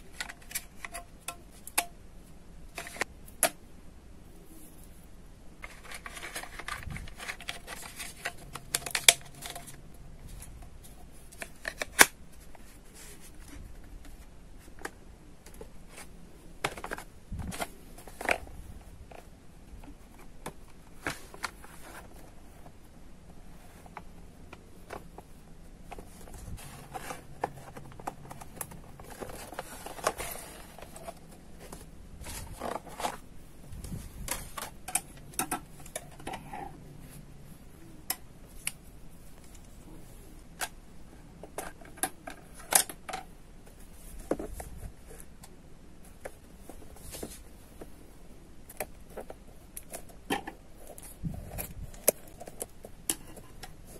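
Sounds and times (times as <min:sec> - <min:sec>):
plastic rustling: 0:05.6 - 0:22.8, 0:24.7 - 0:37.2, 0:46.1 - 0:48.0.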